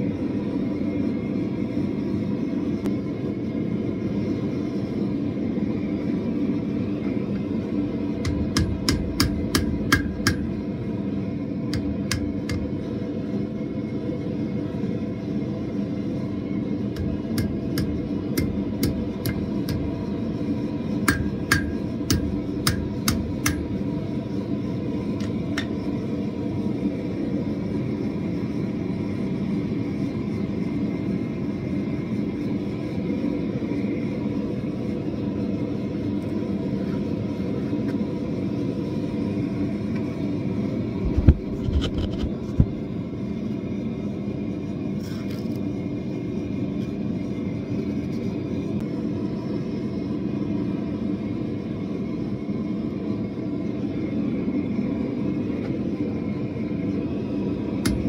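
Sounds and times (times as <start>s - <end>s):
gas forge burner noise: 0.0s - 58.0s
hammer striking steel on anvil: 8.2s - 10.6s, 11.8s - 12.7s, 17.0s - 19.9s, 21.1s - 23.7s.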